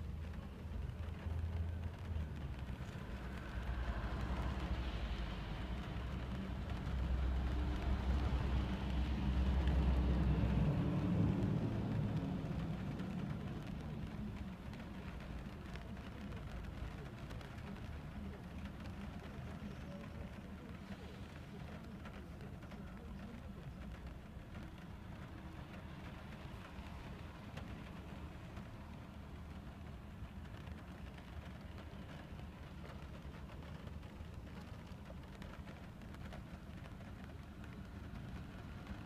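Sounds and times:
rain patter: 0.0 - 39.0
bus passing: 1.1 - 15.5.

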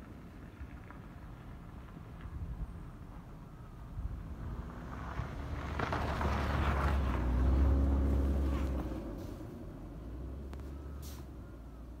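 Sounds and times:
diesel railcar rumbling: 0.1 - 12.0
brief hiss: 11.0 - 11.4.

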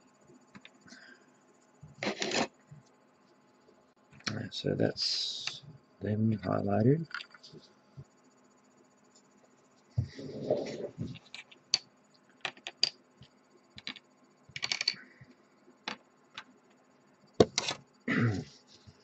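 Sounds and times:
plastic parts clicking and tapping: 12.4 - 13.0, 13.8 - 15.0.

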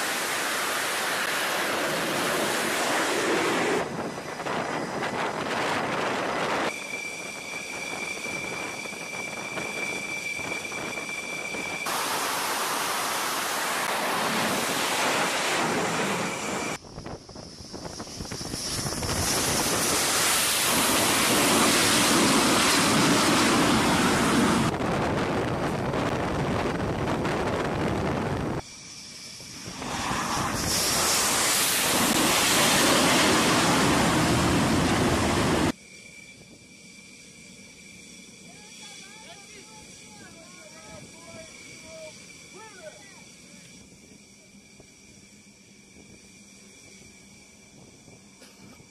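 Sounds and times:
jet aircraft flying low overhead: 0.0 - 48.9
jet engine high whine: 0.0 - 48.9.

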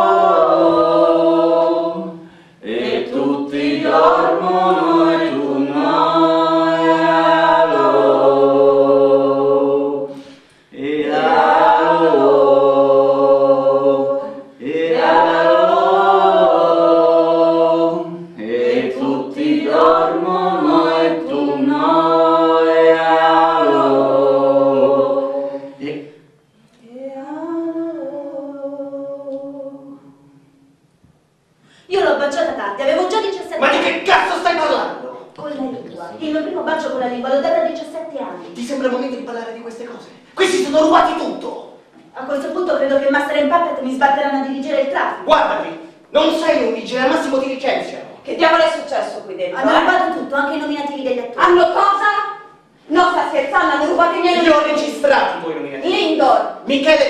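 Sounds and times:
group singing a cappella: 0.0 - 30.8, 49.6 - 50.2.

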